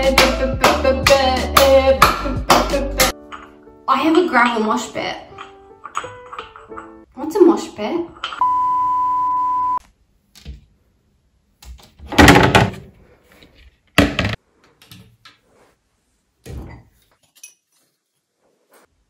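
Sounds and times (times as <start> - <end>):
cupboard doors opening and shutting: 11.8 - 12.9.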